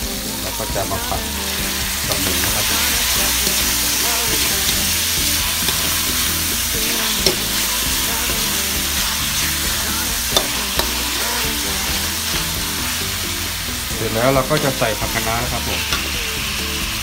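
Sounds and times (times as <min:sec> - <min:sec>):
meat sizzling in a wok: 0:00.0 - 0:17.0
metal spatula clinking wok: 0:02.0 - 0:08.6, 0:09.4 - 0:12.8.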